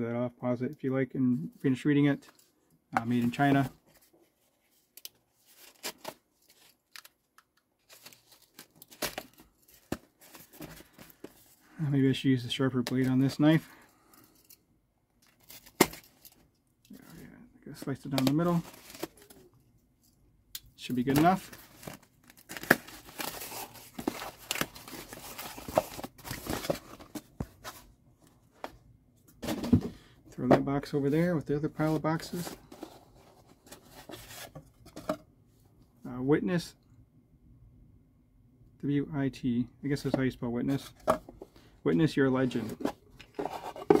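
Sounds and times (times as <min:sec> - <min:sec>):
cardboard box rustling: 0:21.4 - 0:27.9, 0:31.8 - 0:35.0, 0:42.5 - 0:44.0.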